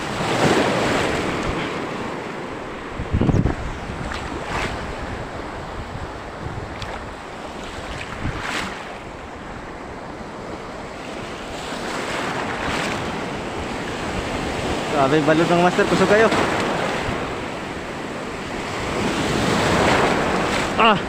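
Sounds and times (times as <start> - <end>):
wind buffeting microphone: 0.0 - 15.0
surf washing: 0.0 - 21.0.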